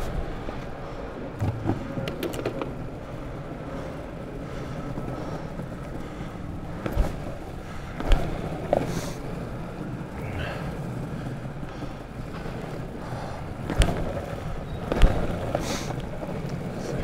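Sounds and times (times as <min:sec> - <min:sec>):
longboard wheels rolling on pavement: 0:00.0 - 0:17.0
sharp clicks and knocks: 0:01.4 - 0:02.8.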